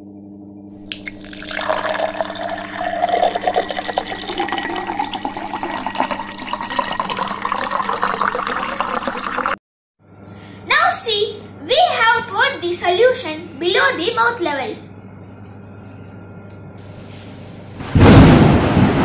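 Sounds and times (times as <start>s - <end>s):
water pouring into a pumpkin: 0.9s - 9.6s.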